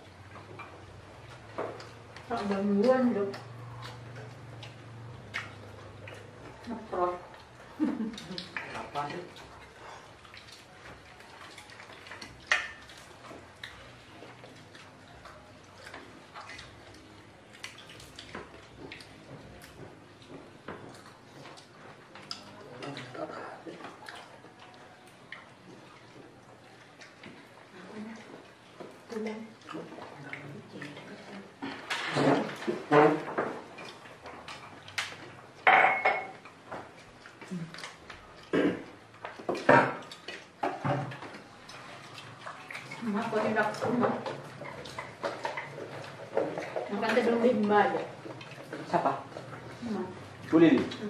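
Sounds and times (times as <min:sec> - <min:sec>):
light taps and clinks of eating: 0:00.2 - 0:51.0
ceramic plates clinking: 0:35.6 - 0:36.4.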